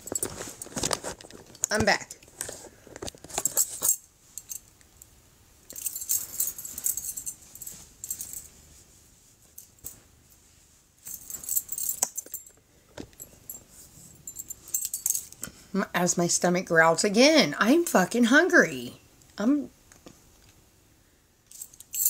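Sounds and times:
small metal objects jingling: 5.7s - 8.5s, 11.0s - 12.6s, 13.2s - 15.4s, 21.5s - 22.0s.

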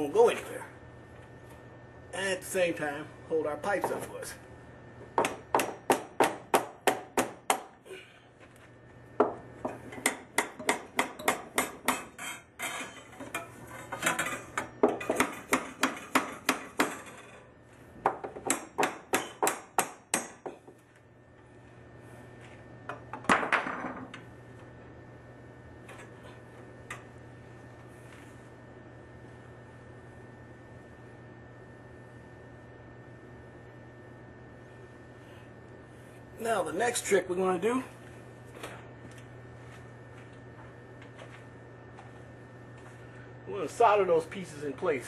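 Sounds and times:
hammer striking copper pipe: 10.0s - 12.1s, 18.2s - 20.6s.

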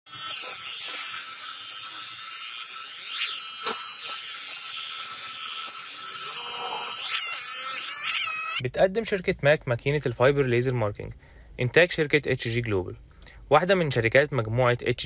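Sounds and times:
laser marking machine whine: 0.1s - 8.6s.

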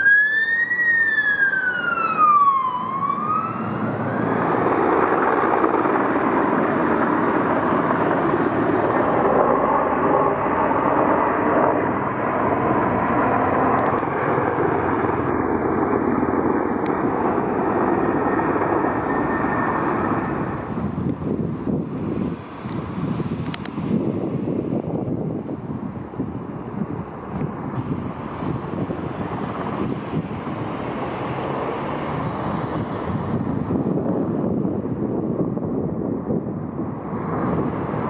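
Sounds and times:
emergency siren wailing: 0.0s - 21.8s
helicopter flying over: 0.0s - 38.0s.

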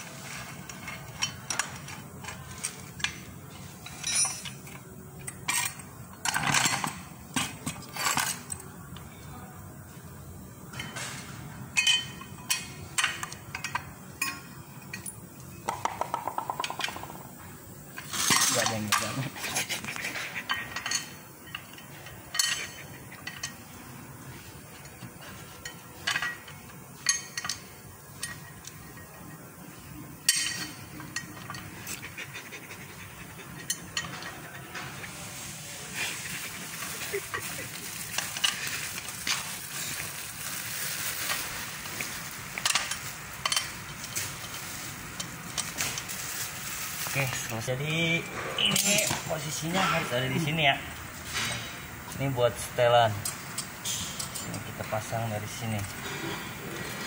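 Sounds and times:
metal tools clinking and knocking: 0.7s - 8.7s, 11.8s - 17.3s, 18.0s - 19.4s, 20.1s - 23.6s, 24.8s - 29.1s, 30.2s - 31.8s, 33.4s - 34.9s, 36.3s - 39.6s, 42.6s - 46.2s, 48.6s - 50.6s, 53.2s - 55.1s.

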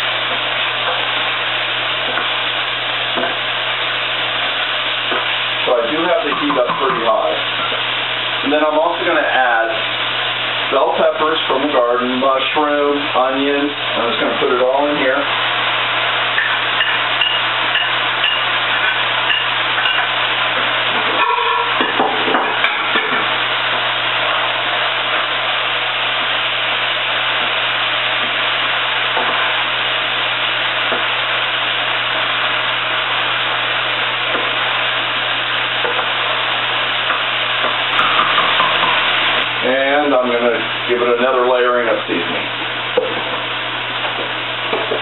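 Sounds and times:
food sizzling in a pan: 0.0s - 45.0s
utensil clattering in pan: 16.4s - 20.2s, 21.0s - 23.3s, 37.1s - 39.2s.

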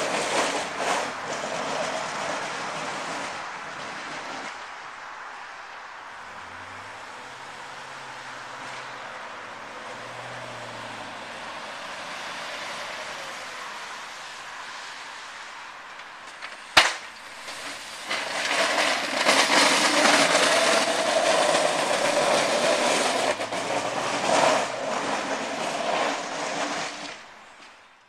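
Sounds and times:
plow blade scraping pavement: 0.0s - 28.0s
truck engine running: 17.2s - 26.7s.

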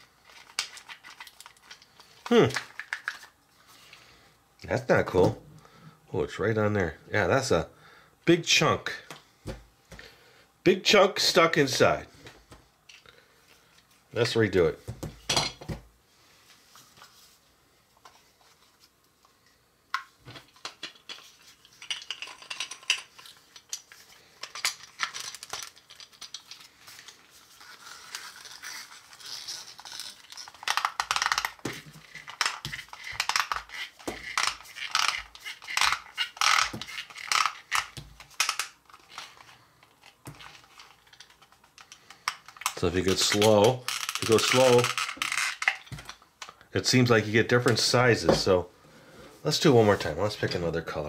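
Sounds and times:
plastic toy parts clicking: 20.6s - 23.8s, 29.2s - 46.6s.

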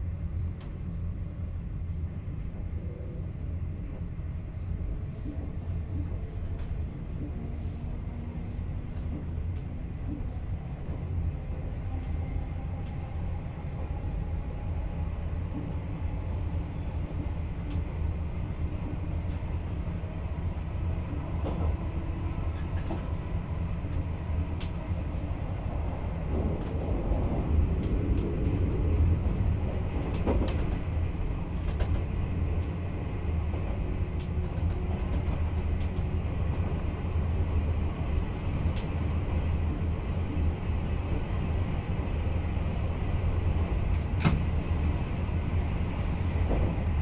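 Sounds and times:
electric train rumbling: 0.0s - 47.0s.

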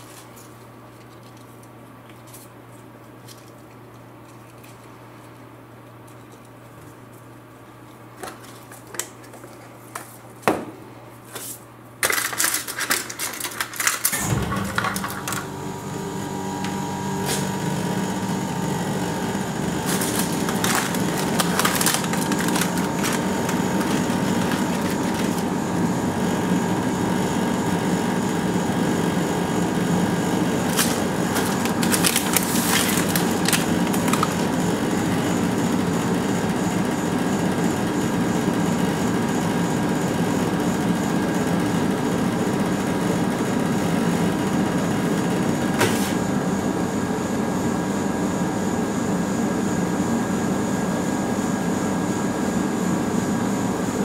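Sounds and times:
machine hum: 10.6s - 40.0s
plastic packaging crinkling: 12.0s - 14.2s, 19.7s - 25.6s, 30.5s - 35.2s.

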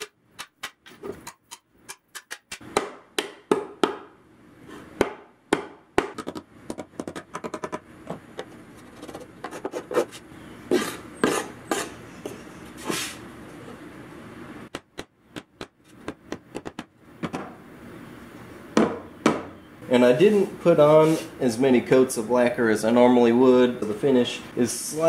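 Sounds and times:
scraping and rubbing on wood: 7.0s - 13.2s.

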